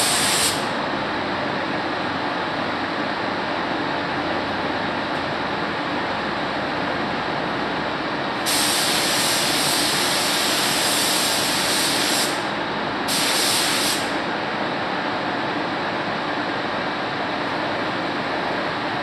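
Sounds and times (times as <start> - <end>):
paint spray gun hissing: 0.0 - 0.7, 8.4 - 12.4, 13.1 - 14.2
background air rush: 0.0 - 19.0.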